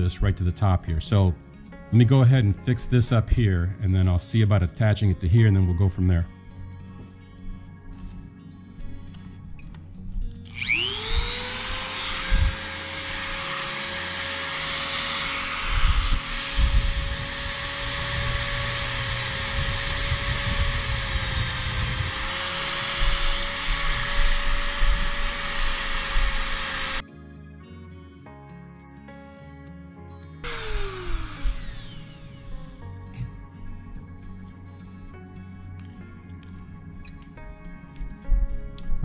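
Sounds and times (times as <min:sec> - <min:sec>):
rotary tool whining: 0:07.9 - 0:27.0, 0:30.4 - 0:35.1.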